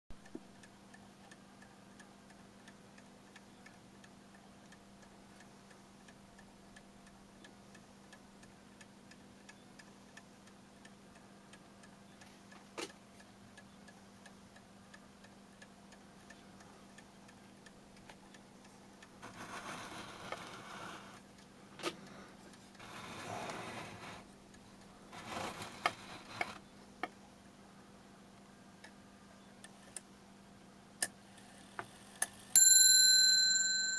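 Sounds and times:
clock ticking: 0.2 - 27.1.

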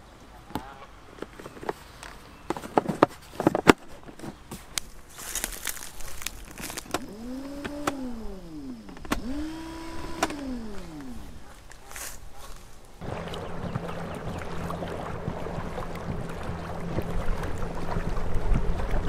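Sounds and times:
battery clamps and cables clicking: 6.1 - 11.4
electric trolling motor whine: 6.6 - 11.7, 13.0 - 19.0.

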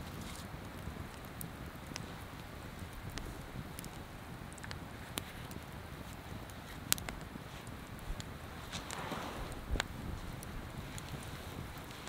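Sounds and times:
low outdoor rumble: 0.0 - 12.0
faint sharp clicks: 6.9 - 7.3.

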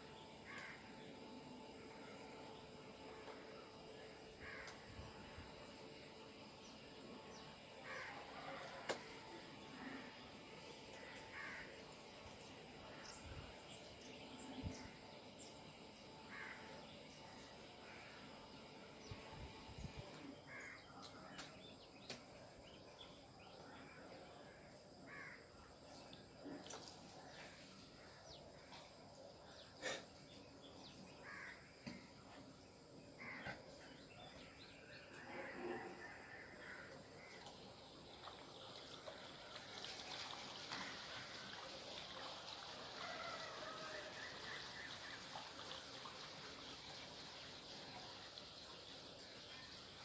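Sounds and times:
faint bird calls: 20.5 - 22.2, 25.0 - 27.8, 28.4 - 32.4, 33.2 - 37.6.

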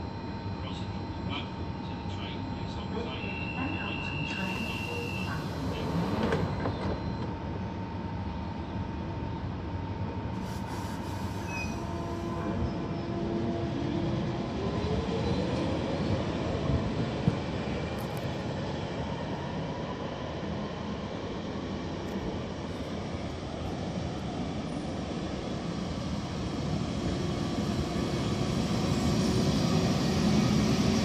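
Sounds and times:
train wheels rolling on rails: 4.3 - 7.4.

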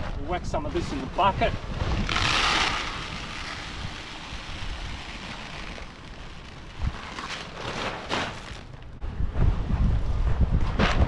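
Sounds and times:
wind rumble on microphone: 0.0 - 7.4, 8.8 - 11.0
granules pouring into bucket: 1.8 - 8.9.

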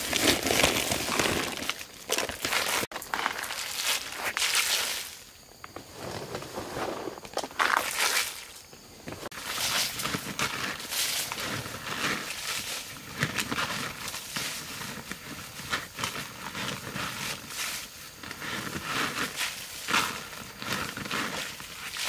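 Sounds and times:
plastic sack rustling and crinkling: 0.0 - 22.0.

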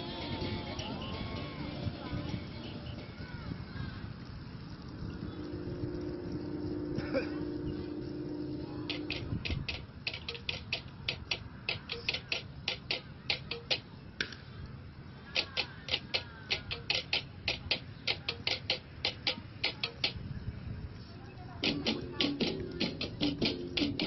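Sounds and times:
sharp percussive clicks: 3.8 - 14.4, 15.3 - 20.3, 21.6 - 24.0.

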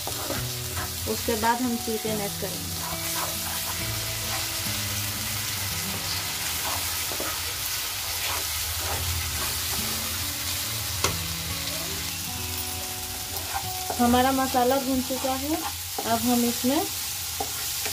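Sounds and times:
wooden spatula stirring and scraping: 0.0 - 1.5, 2.2 - 4.6, 5.9 - 10.2, 13.3 - 16.6, 17.4 - 17.9
masala sizzling in oil: 0.0 - 17.9.

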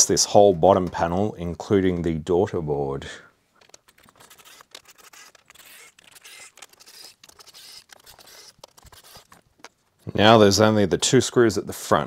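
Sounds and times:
screws clicking and scraping on metal: 3.6 - 10.0.

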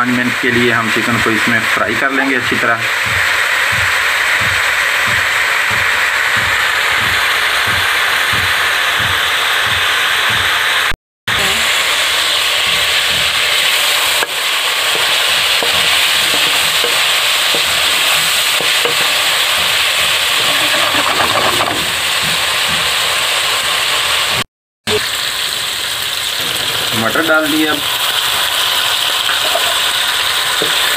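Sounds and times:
chicken sizzling in hot oil: 0.1 - 30.9
wooden spatula stirring in wok: 12.0 - 23.4.

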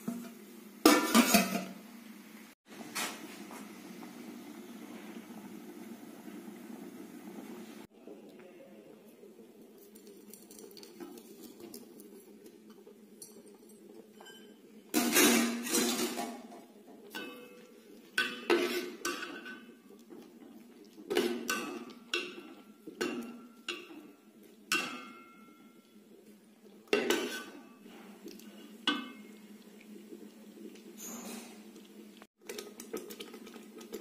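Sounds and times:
metal ladle clinking on pot: 17.1 - 19.8, 21.1 - 25.8.

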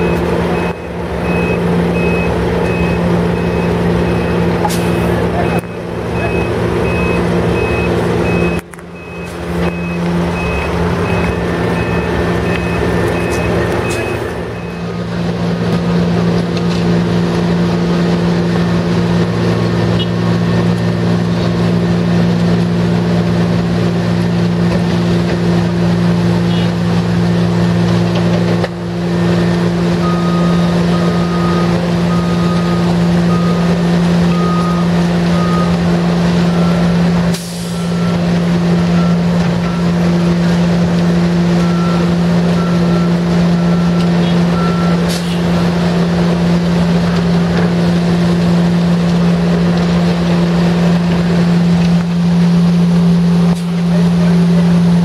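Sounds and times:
reversing alarm beeping: 0.0 - 15.3, 28.9 - 46.6
diesel truck engine humming: 0.0 - 55.0.

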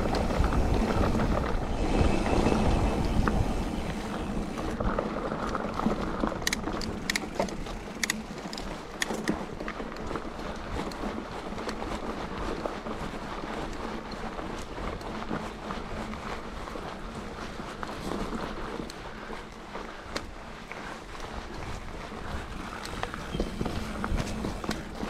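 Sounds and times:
bike rattling: 0.0 - 25.0
bike tyres rumbling on dirt: 0.0 - 25.0
sharp clicks and ticks: 2.4 - 9.8.

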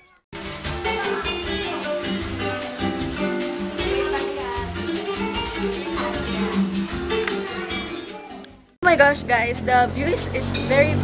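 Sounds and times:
background music with beat: 0.4 - 8.8.

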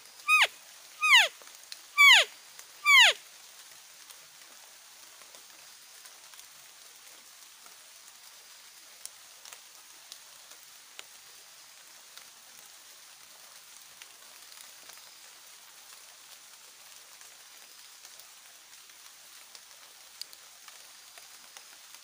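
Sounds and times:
forest ambience hiss: 0.0 - 22.0
small clicks and ticks: 9.0 - 11.1, 17.6 - 22.0.

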